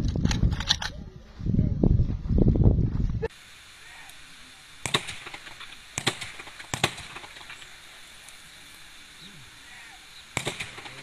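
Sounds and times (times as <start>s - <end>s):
rifle shots: 4.8s - 7.7s, 10.4s - 11.0s.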